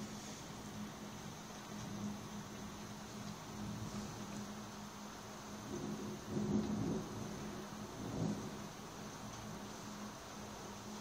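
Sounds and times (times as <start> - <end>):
distant thunder rumbling: 5.6 - 10.1.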